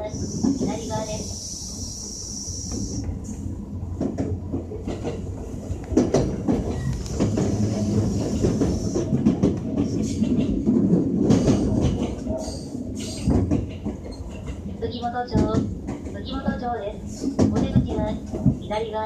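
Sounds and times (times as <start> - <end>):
train low rumble: 0.0 - 19.0
train wheel clicks over rail: 5.8 - 14.6.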